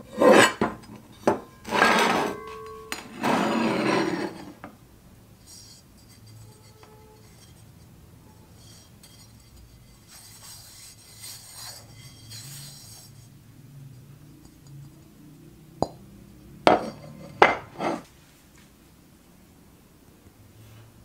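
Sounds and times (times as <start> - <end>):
pan lid rubbing hiss: 5.4 - 13.4.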